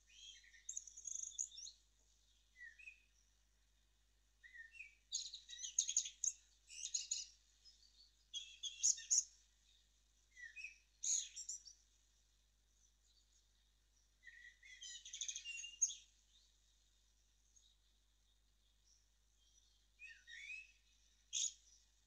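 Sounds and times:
birds chirping and singing: 0.1s - 1.7s, 4.5s - 9.8s, 10.4s - 11.8s, 14.2s - 16.5s, 18.8s - 21.9s.

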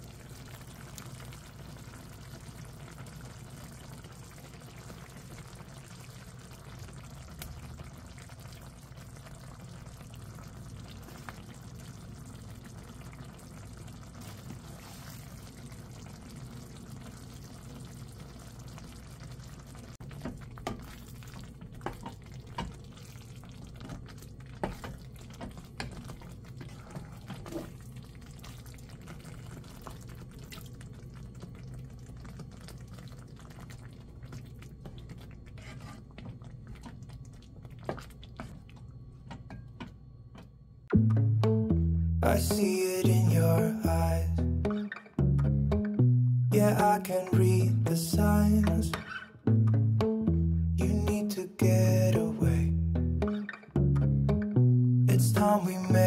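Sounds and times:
curry simmering and bubbling: 0.0s - 40.2s
wooden spatula scraping pot: 35.4s - 37.0s.

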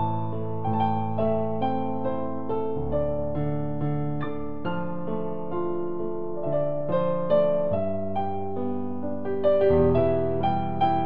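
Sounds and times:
slow keyboard melody: 0.0s - 11.0s.

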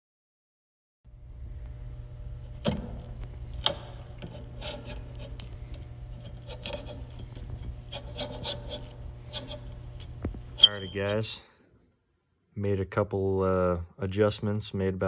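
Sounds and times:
steady low hum: 1.1s - 15.0s
hand tap scraping metal: 2.6s - 11.2s.

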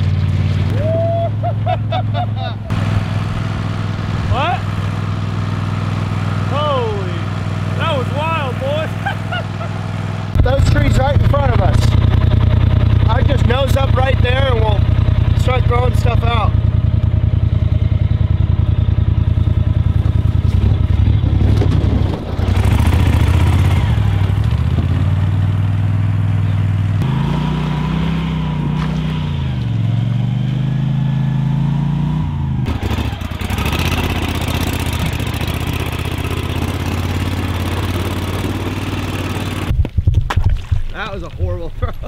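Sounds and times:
boat motor running: 0.0s - 30.1s, 32.6s - 39.9s.

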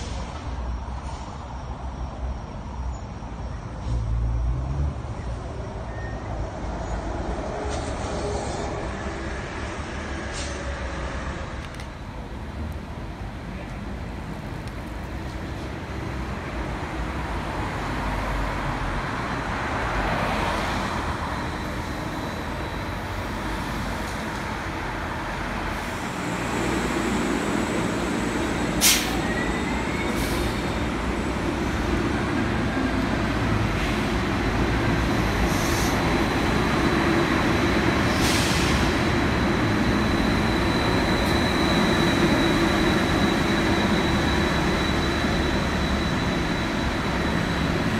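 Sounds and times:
echoing bus tunnel drone: 0.0s - 47.9s
street traffic drone: 0.0s - 47.9s
trolleybus approaching: 0.0s - 47.9s
thin high whine: 37.5s - 47.9s.

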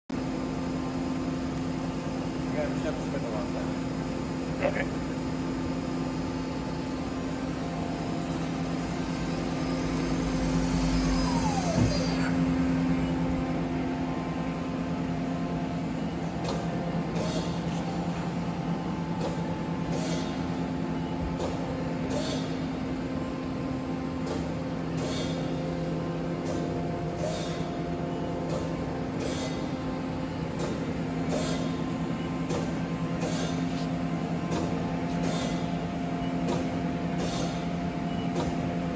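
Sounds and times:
lathe mechanical hum: 0.2s - 38.9s
tool turret hissing clicks: 36.5s - 37.6s.

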